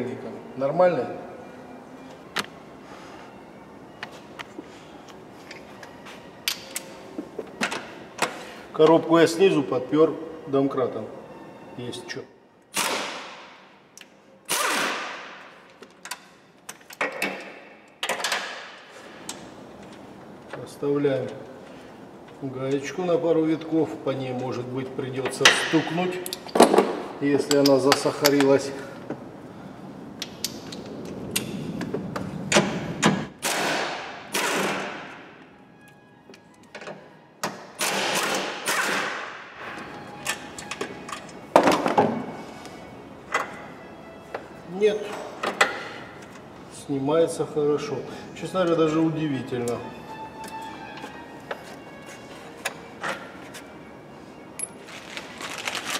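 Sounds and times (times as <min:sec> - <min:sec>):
pneumatic impact wrench hammering: 0:12.7 - 0:13.3, 0:14.5 - 0:15.4, 0:32.5 - 0:35.1, 0:37.4 - 0:39.3.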